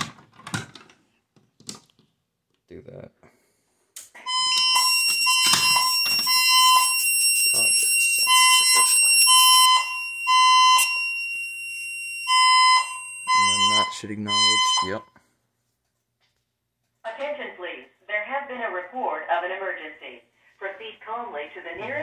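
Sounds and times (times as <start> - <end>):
electronic alarm beeping: 4.2 - 15.1
shrill alarm ringing: 4.2 - 15.1.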